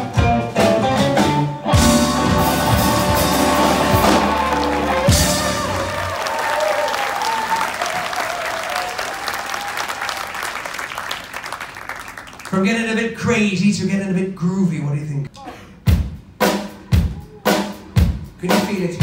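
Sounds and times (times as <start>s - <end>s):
rock band playing: 0.0s - 6.8s, 15.9s - 19.0s
audience applauding: 2.2s - 12.6s.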